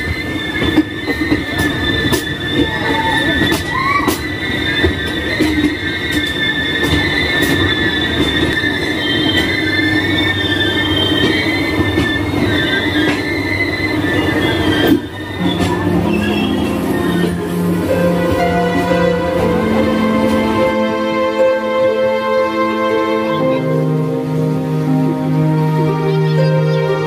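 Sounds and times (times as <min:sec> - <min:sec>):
train wheels squealing: 0:00.0 - 0:21.1
train running rumble: 0:00.0 - 0:27.0.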